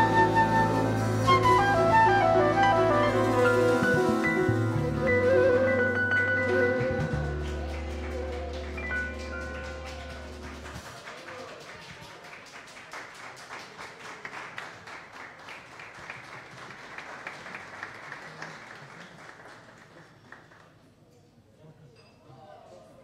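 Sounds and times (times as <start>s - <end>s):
band final chord with bass: 0.0s - 10.8s
audience applauding: 0.0s - 20.9s.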